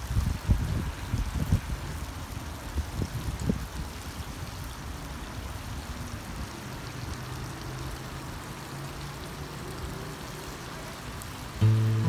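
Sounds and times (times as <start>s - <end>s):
fountain water splashing: 0.0s - 12.0s.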